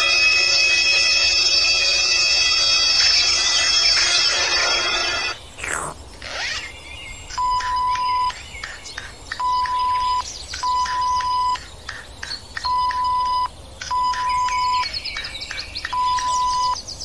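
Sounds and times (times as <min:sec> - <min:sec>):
birds chirping: 0:03.3 - 0:17.0
cartoon soundtrack: 0:05.6 - 0:06.7
censor bleeps: 0:07.4 - 0:08.3, 0:09.4 - 0:11.6, 0:12.7 - 0:14.9, 0:16.0 - 0:16.8.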